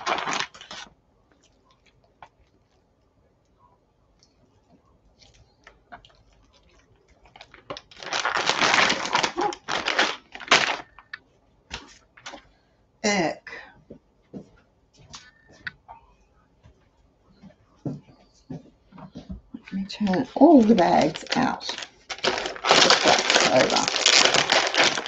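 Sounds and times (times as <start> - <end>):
plastic bags crinkling: 0.0 - 0.9, 5.2 - 11.2, 19.7 - 25.0.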